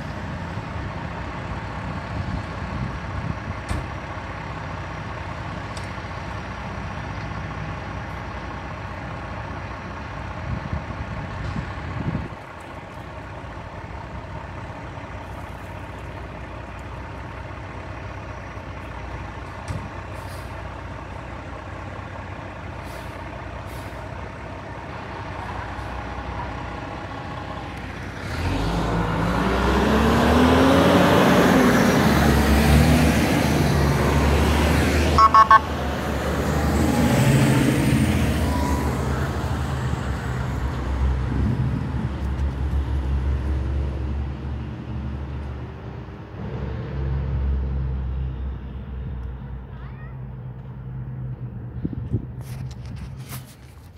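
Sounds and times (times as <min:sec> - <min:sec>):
fire engines idling: 0:00.0 - 0:29.3, 0:31.6 - 0:46.4
truck engine revving: 0:22.8 - 0:45.4
short sharp sounds: 0:35.2 - 0:35.7.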